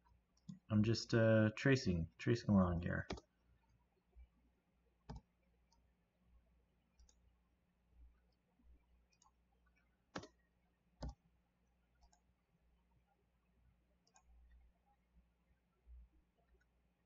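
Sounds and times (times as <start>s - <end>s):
faint low hum: 0.0s - 17.0s
computer mouse clicks: 3.1s - 3.3s, 5.1s - 5.8s, 7.0s - 7.2s, 9.1s - 11.2s, 11.9s - 12.2s, 14.0s - 14.3s.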